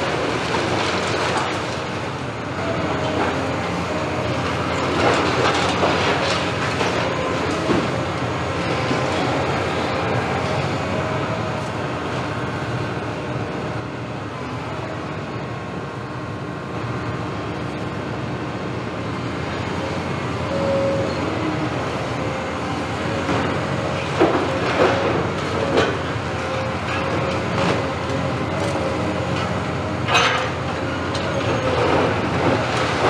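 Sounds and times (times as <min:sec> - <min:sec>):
excavator engine and hydraulics: 0:00.0 - 0:33.0.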